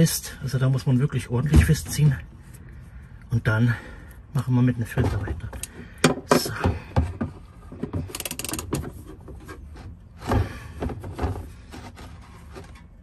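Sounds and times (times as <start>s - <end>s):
ratchet wrench clicking: 8.1s - 8.7s.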